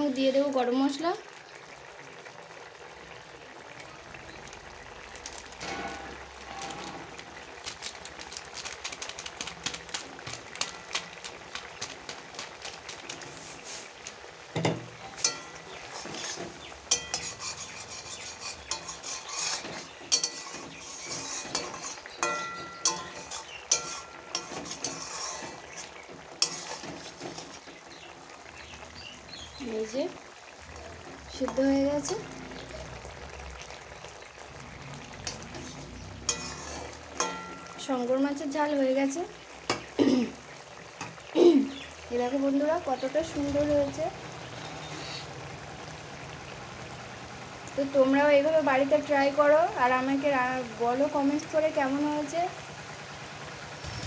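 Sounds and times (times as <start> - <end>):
curry bubbling and spluttering: 0.0 - 54.0
metal spatula scraping pan: 14.6 - 27.8, 35.2 - 37.9.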